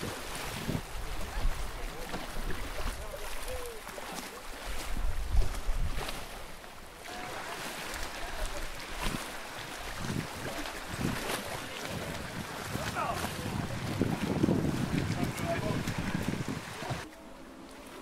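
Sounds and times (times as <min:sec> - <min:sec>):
wind buffeting microphone: 0:00.0 - 0:03.1, 0:04.6 - 0:06.3, 0:08.9 - 0:17.1.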